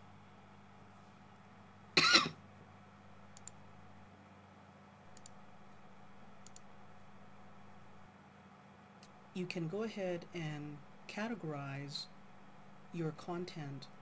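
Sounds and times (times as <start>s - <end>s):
low steady hum: 0.0s - 14.0s
computer mouse clicks: 3.3s - 3.6s, 5.1s - 5.4s, 6.4s - 6.7s.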